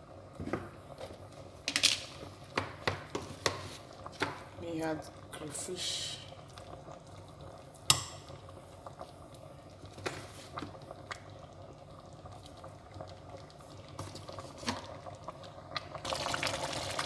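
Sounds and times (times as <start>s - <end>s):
soup simmering and bubbling: 0.0s - 17.0s.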